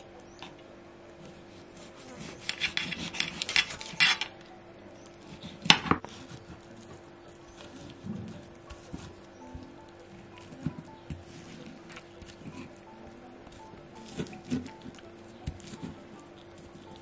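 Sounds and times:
knife sawing through raw meat: 1.3 - 4.2.

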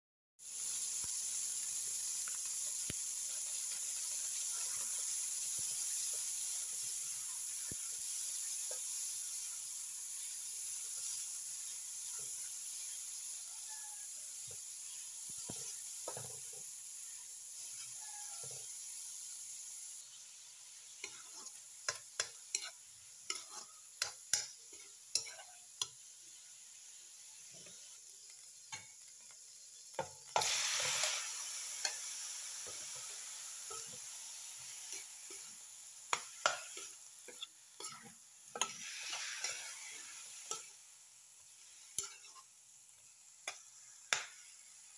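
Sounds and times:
meat sizzling in hot oil: 0.4 - 44.9
metal spatula scraping wok: 14.8 - 19.0, 20.7 - 25.9, 30.4 - 40.8, 41.6 - 42.5.

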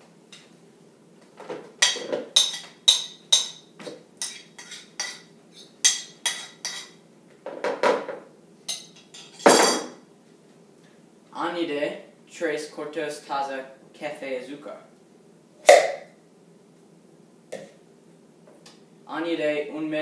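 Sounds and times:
bowl clattering set down: 9.4 - 10.0.

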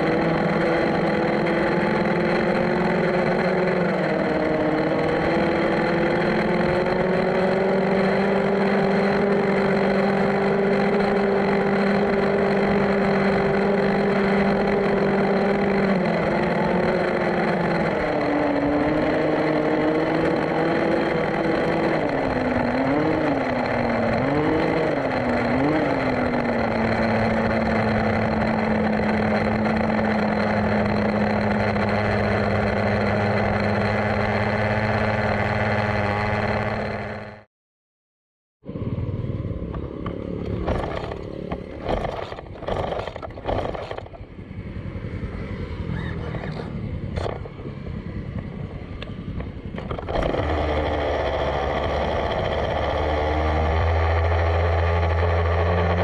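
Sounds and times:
two-stroke rc buggy engine: 0.0 - 37.5, 38.7 - 56.0.

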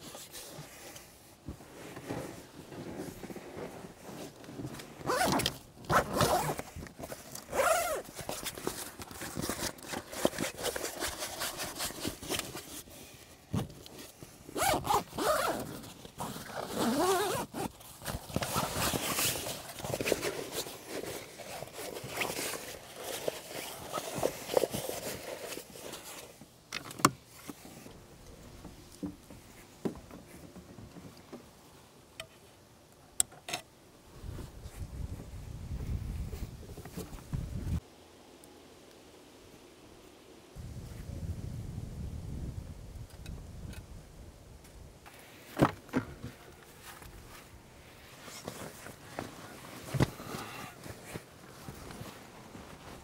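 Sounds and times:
camping gear rustling: 0.0 - 39.7, 44.7 - 53.0
zippers opening and closing: 5.0 - 12.6, 14.6 - 25.8.

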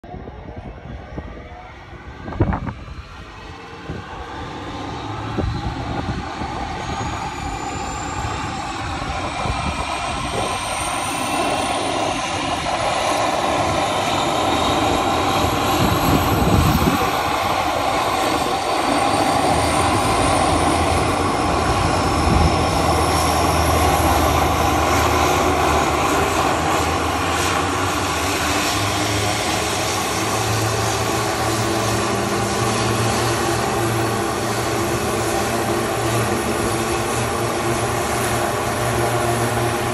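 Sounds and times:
turboprop engine turbine whine: 0.0 - 39.9
propellers turning: 2.1 - 39.9.

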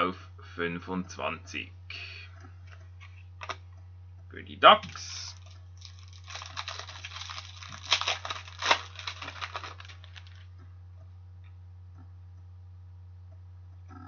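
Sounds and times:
cards and sleeve rustling: 4.9 - 10.5.

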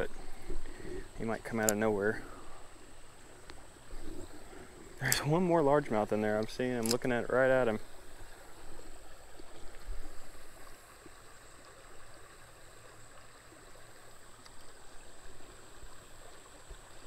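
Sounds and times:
creek water trickling: 0.0 - 17.0.

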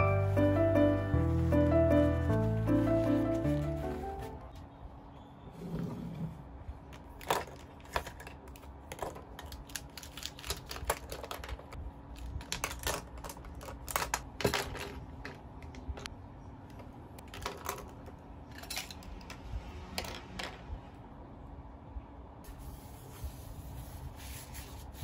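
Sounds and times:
plastic pens clicking and clattering: 7.0 - 16.1, 17.2 - 19.4.

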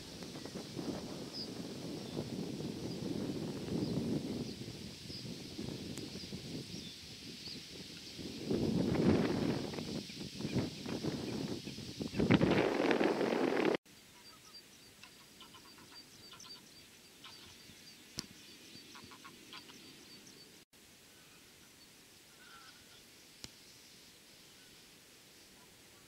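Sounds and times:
wind buffeting microphone: 0.0 - 13.8
faint birds calling: 13.9 - 24.8.

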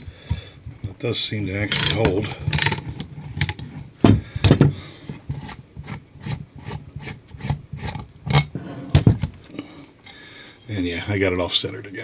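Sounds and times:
metal parts clicking and scraping: 1.7 - 3.7.

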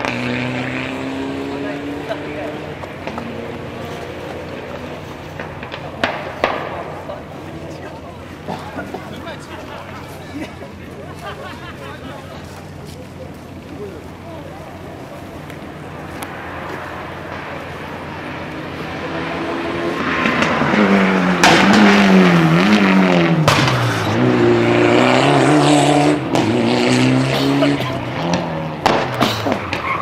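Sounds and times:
rally car engine revving: 0.0 - 30.0
sharp cracks: 5.3 - 7.2, 28.8 - 30.0.

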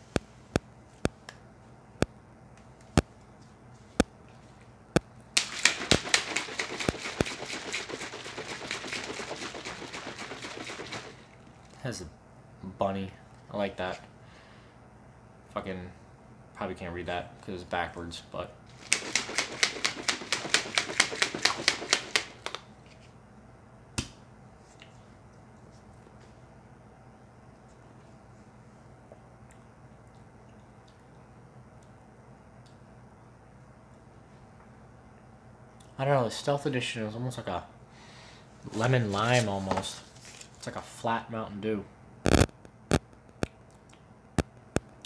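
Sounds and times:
shaker bottle shaken with liquid: 5.4 - 11.8, 18.7 - 22.6
sharp clicks: 42.3 - 43.6.

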